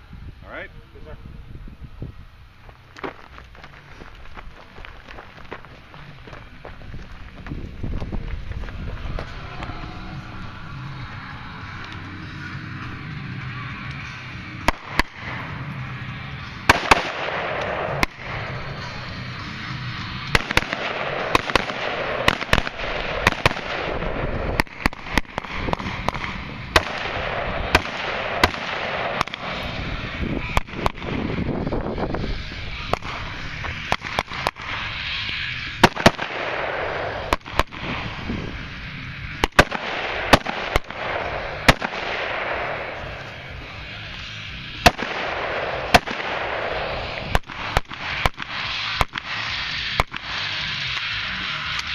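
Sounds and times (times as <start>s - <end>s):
rifle gunshots: 16.7s - 18.6s, 20.3s - 29.7s, 30.4s - 31.2s, 35.8s - 38.0s, 39.4s - 43.3s, 44.8s - 50.4s.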